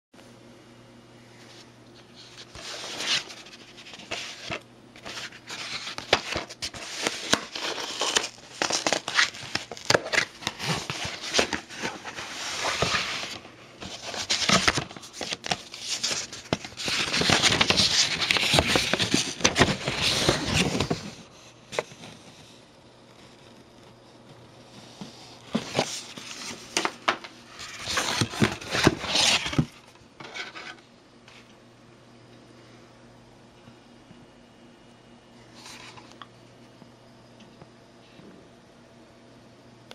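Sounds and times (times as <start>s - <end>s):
packet wrapping crinkling: 2.8s - 21.0s.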